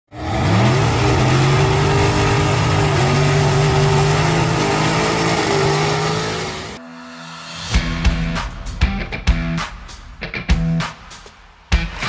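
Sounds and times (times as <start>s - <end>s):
race car engine revving: 0.1s - 6.8s.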